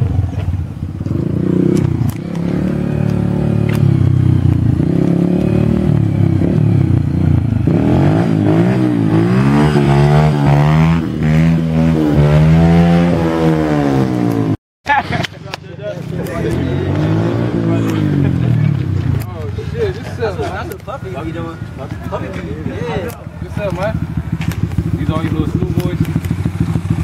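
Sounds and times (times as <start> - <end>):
dirt bike engine revving: 0.0 - 14.6, 16.1 - 19.3.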